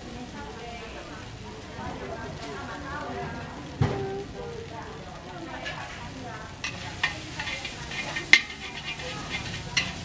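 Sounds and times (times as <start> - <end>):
noodles sizzling in a wok: 0.0 - 10.0
spatula clanking on wok: 5.5 - 10.0
metal spatula scraping: 5.6 - 10.0.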